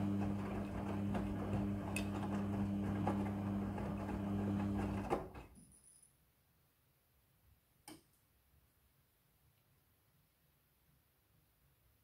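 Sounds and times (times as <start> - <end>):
washing machine motor hum: 0.0 - 5.5.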